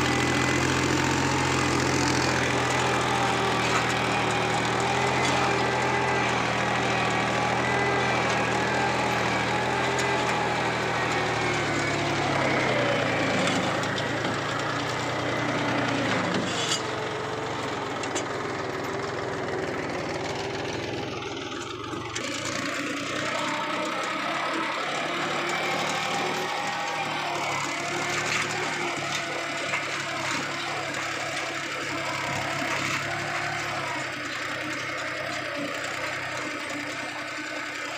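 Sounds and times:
tractor diesel engine running: 0:00.0 - 0:37.9.

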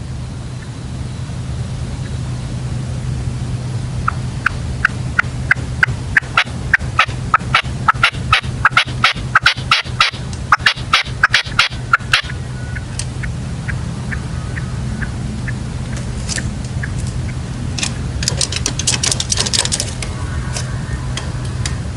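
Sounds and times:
steady low hum: 0:00.0 - 0:21.9
partridge calling: 0:04.0 - 0:17.4.

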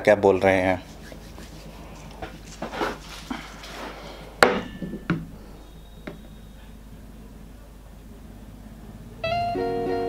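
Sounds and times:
plastic object rustling: 0:00.8 - 0:04.2.

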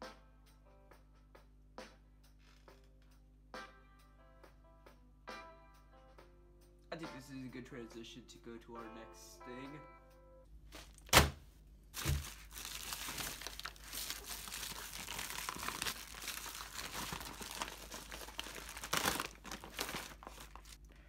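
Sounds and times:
plastic packaging crinkling: 0:12.0 - 0:20.8.

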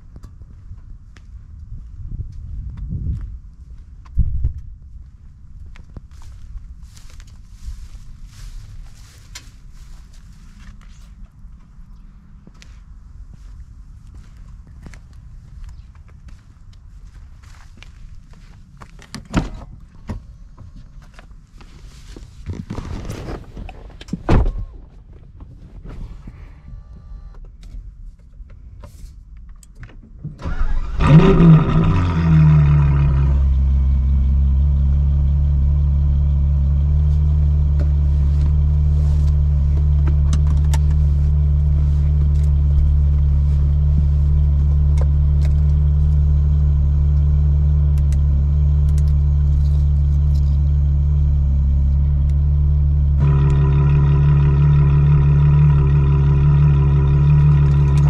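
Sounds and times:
car engine starting and idling: 0:30.2 - 0:58.0.

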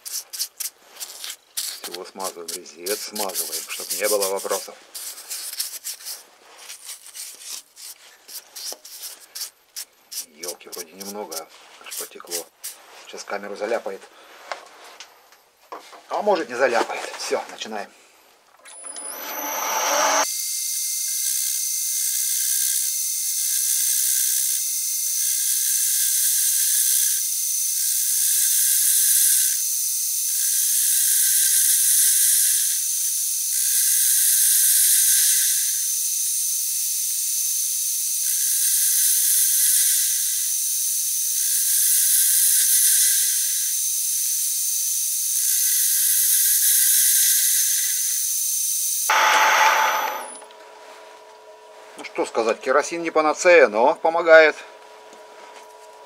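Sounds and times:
metal lathe cutting: 0:18.8 - 0:20.2, 0:49.1 - 0:50.4.

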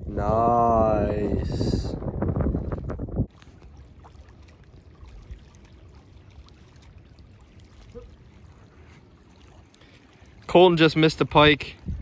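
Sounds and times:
water flowing over spillway: 0:03.6 - 0:12.0.

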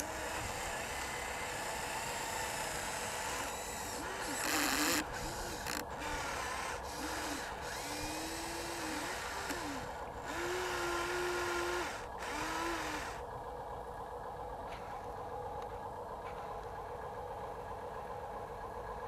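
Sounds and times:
electric motors whining: 0:00.0 - 0:13.3.

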